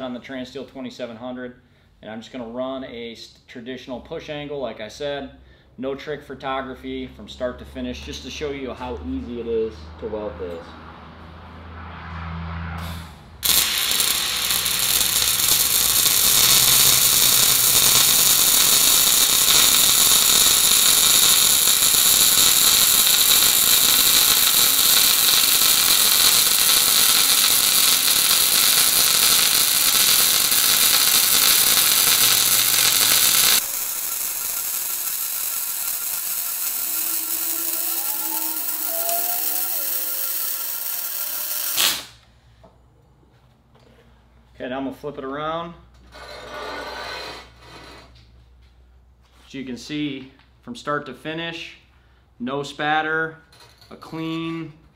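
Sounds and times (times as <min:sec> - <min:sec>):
welding arc hissing: 0:13.4 - 0:42.2.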